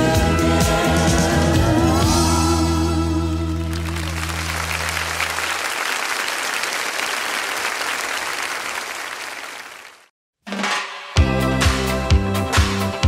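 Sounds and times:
audience applause: 0:03.6 - 0:10.1.

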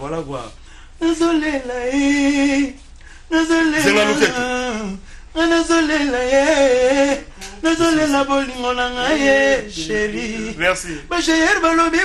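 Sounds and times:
singer breathing: 0:00.6 - 0:01.0, 0:03.0 - 0:03.3, 0:05.0 - 0:05.3, 0:10.8 - 0:11.1
man singing long held notes: 0:03.3 - 0:11.3.

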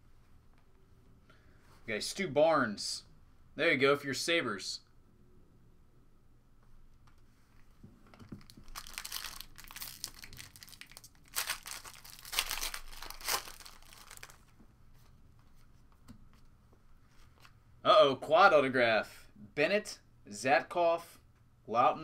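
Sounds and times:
foil pack tearing and crinkling: 0:08.4 - 0:14.4.

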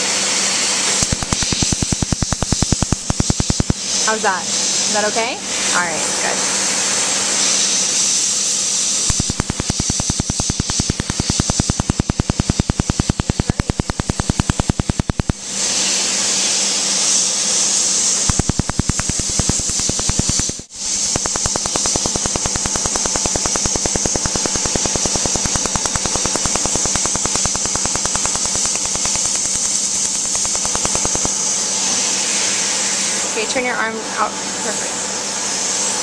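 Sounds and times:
cooling hose air hiss: 0:00.4 - 0:33.4
laser firing sharp snaps: 0:01.0 - 0:04.3, 0:08.8 - 0:15.5, 0:18.1 - 0:32.6.

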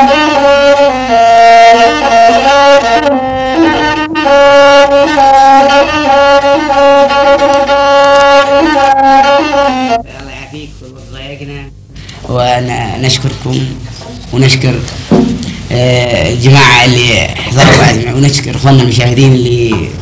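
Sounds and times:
bowed fiddle slow melody: 0:00.0 - 0:10.1.

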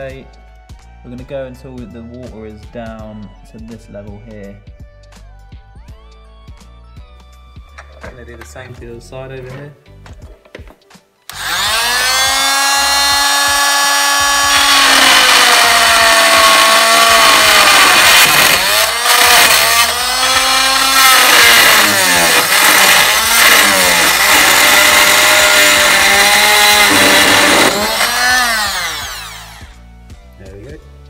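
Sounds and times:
oscillating multi-tool cutting pipe: 0:11.3 - 0:29.8.

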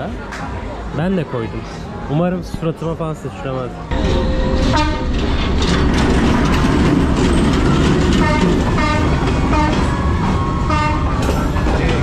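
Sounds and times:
train rumbling past: 0:03.9 - 0:12.0
wheels rattling over track: 0:03.9 - 0:12.0.

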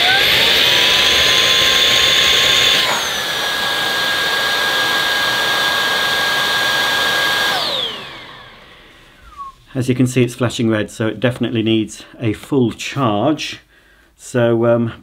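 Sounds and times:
cordless vacuum motor whining: 0:00.0 - 0:09.5.

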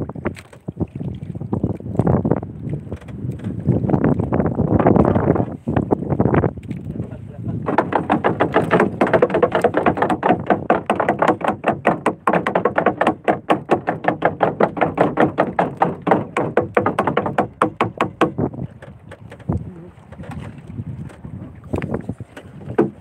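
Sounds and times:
water noise: 0:00.0 - 0:23.0
wind: 0:00.0 - 0:23.0
boat engine popping: 0:06.4 - 0:23.0.

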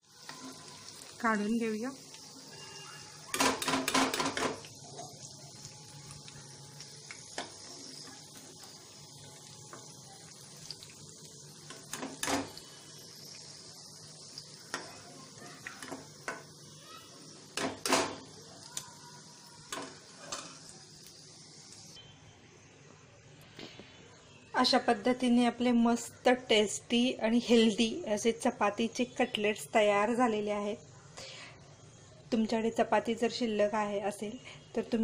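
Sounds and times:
oil sizzling: 0:00.0 - 0:22.1.

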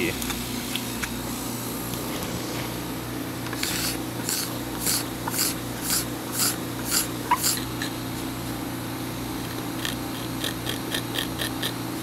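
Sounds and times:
steady low hum: 0:00.0 - 0:12.0
metal scraper rasping on ski base: 0:03.6 - 0:07.7.

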